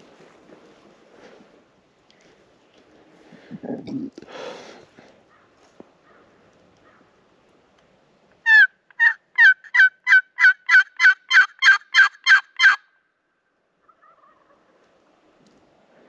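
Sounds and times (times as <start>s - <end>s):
turkey call hen yelps: 8.4s - 12.9s, 13.8s - 14.7s.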